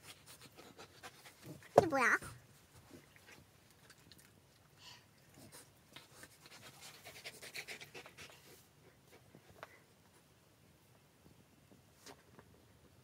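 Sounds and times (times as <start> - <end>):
dog panting faintly: 0.0 - 1.8, 4.7 - 9.7.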